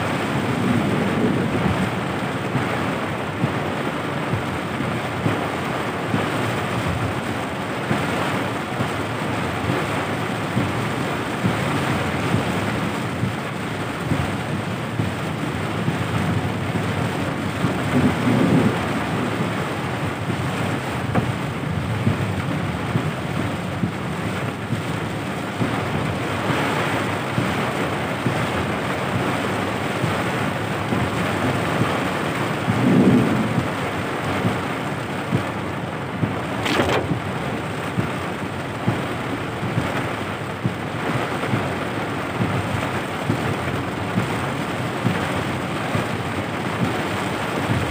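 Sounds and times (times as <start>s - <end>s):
heavy rain on car roof: 0.0s - 47.9s.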